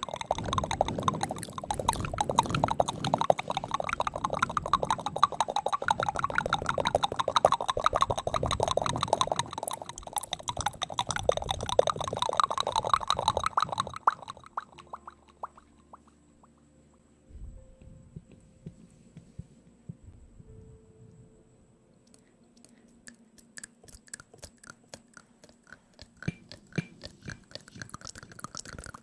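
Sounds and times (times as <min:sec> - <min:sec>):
wet tongue and lip clicks: 0:00.0 - 0:16.1, 0:22.0 - 0:29.0.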